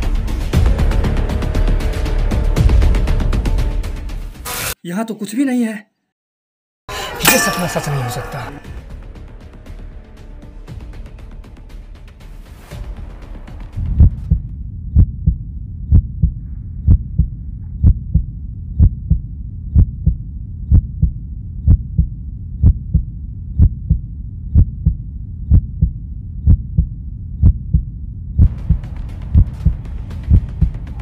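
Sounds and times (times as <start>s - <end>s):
heartbeat thumps: 13.8s - 31.0s.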